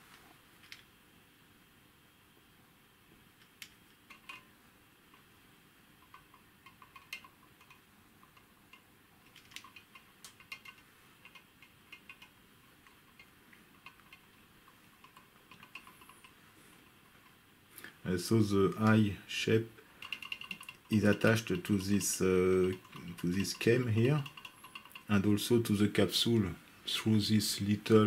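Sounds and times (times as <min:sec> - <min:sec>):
small clicks of handling metal parts: 0:00.6 - 0:00.9, 0:03.4 - 0:04.5, 0:06.0 - 0:18.0, 0:19.9 - 0:25.3.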